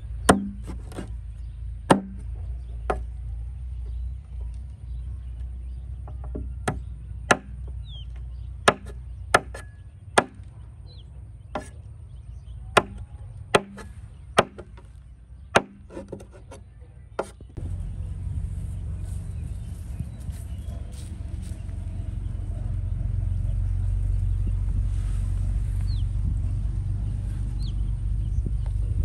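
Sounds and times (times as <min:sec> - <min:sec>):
blade chopping: 0:00.2 - 0:01.2, 0:01.9 - 0:02.3, 0:08.7 - 0:10.5, 0:11.6 - 0:11.8, 0:12.8 - 0:14.9, 0:15.6 - 0:16.6.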